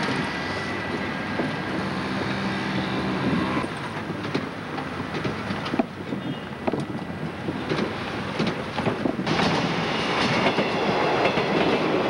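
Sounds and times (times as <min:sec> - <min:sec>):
train rumbling past: 0:00.0 - 0:12.0
train wheel clicks: 0:03.8 - 0:05.9, 0:07.6 - 0:12.0.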